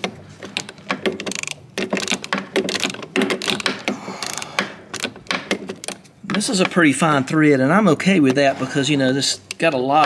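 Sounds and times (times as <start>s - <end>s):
hand ratchet clicking: 0.0s - 5.2s.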